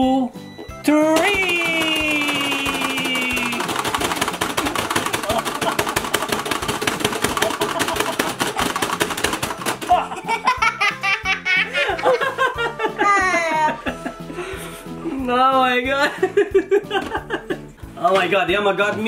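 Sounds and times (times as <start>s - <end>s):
background music: 0.0s - 19.0s
rapid plastic button clicking: 1.2s - 9.9s
man and boy laughing: 5.2s - 6.0s, 7.3s - 8.9s, 9.9s - 14.4s, 16.0s - 17.7s.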